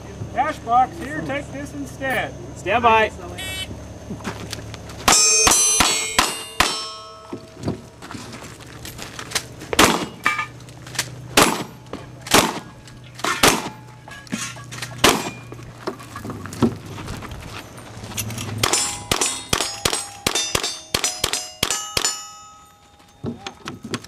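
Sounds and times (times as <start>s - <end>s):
steel targets ringing: 5.0s - 7.7s, 9.8s - 10.6s, 13.2s - 15.7s, 17.6s - 24.0s
gunshots: 9.8s - 10.2s, 11.4s - 11.7s, 12.3s - 12.7s, 13.3s - 13.8s, 15.0s - 15.4s.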